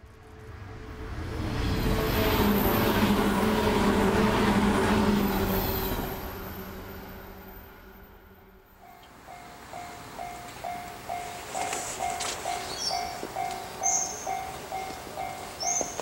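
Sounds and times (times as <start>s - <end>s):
wheels rumbling on rail: 0.0s - 16.0s
electric train motors humming: 8.8s - 16.0s.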